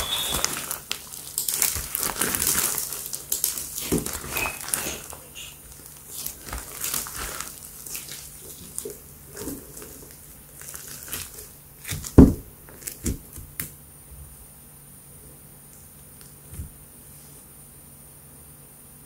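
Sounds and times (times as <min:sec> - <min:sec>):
slime squishing and crackling: 0:00.0 - 0:13.6.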